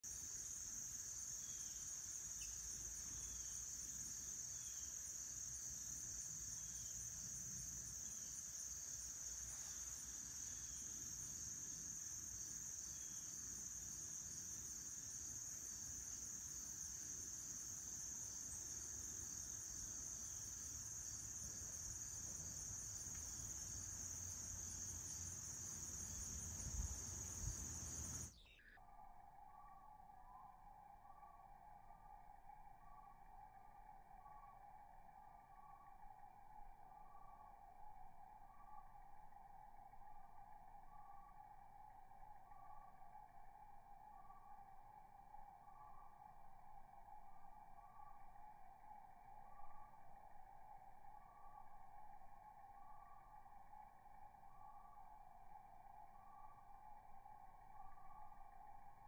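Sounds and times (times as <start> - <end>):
insects trilling: 0.0 - 59.0.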